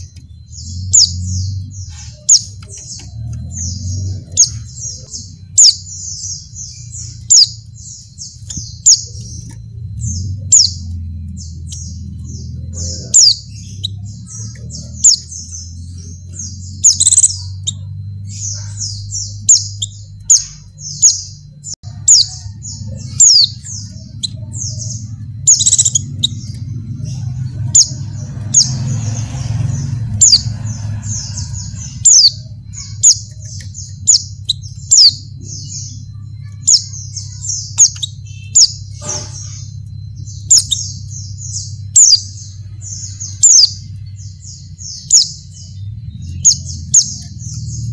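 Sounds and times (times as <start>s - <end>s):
bird chirping rapidly: 0.0s - 47.9s
low steady hum: 0.0s - 47.9s.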